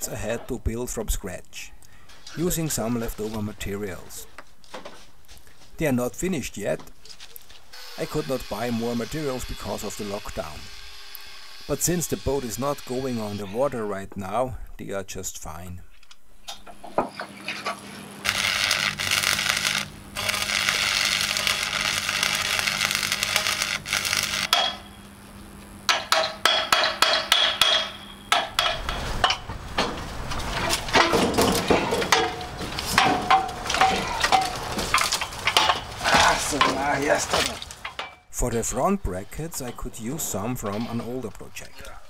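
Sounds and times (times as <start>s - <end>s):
low welder hum: 7.6s - 13.9s, 16.4s - 42.0s
welding arc crackling: 7.7s - 13.7s, 16.7s - 38.0s
sharp metallic knocks and clinks: 25.9s - 29.9s.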